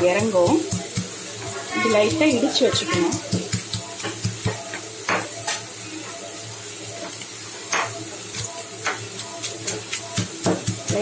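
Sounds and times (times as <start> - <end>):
pan sizzling: 0.0 - 11.0
stone pestle pounding in mortar: 2.2 - 5.3, 8.8 - 11.0.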